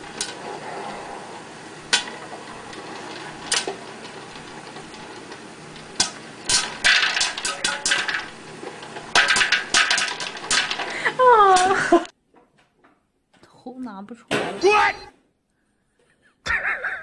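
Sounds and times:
popcorn kernels popping: 1.5 - 12.1.

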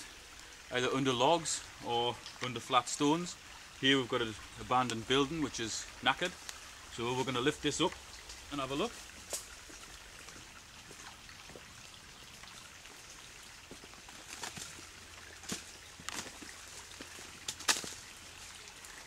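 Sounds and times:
light rain falling: 0.0 - 19.0
sharp taps and rustles: 15.4 - 18.0.

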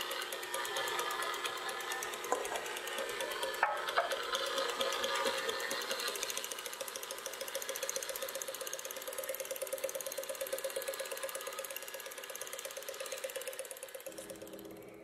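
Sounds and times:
electric stand mixer running: 0.0 - 15.0.

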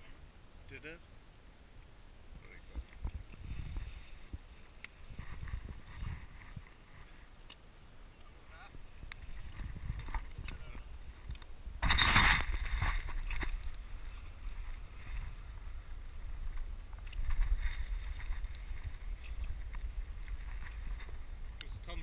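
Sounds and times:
wind buffeting microphone: 2.7 - 7.1, 8.7 - 22.0
rustling noise burst: 11.8 - 13.6.

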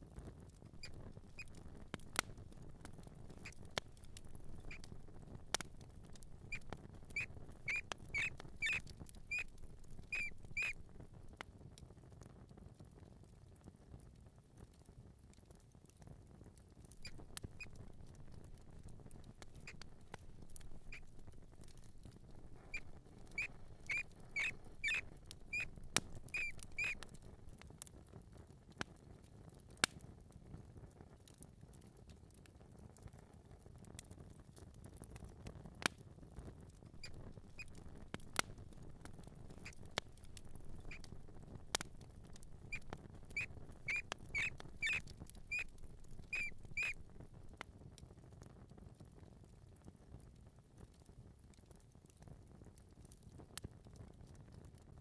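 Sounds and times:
mouse squeaking: 0.8 - 2.6, 3.3 - 10.9, 17.0 - 27.2, 37.0 - 47.0.

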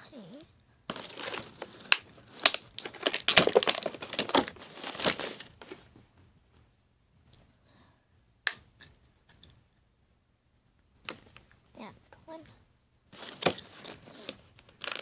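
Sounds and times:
plastic packaging crinkling: 0.9 - 5.8, 13.2 - 15.0.

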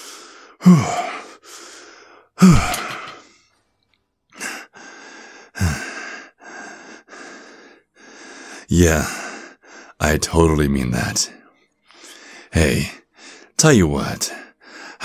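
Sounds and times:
man sighing heavily: 0.6 - 1.3, 2.4 - 3.3, 5.6 - 6.0.

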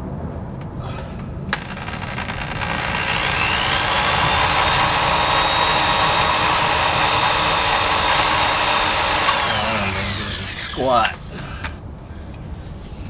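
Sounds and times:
power drill whining: 1.5 - 11.2.

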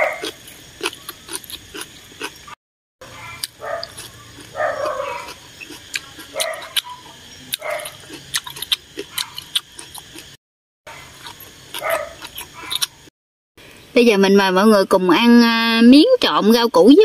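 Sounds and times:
chewing: 0.0 - 13.1.

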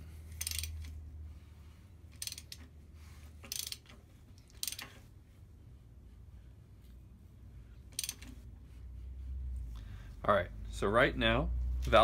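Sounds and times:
metallic clicking and rattling: 0.3 - 1.0, 2.1 - 2.8, 3.4 - 5.0, 7.9 - 8.4.

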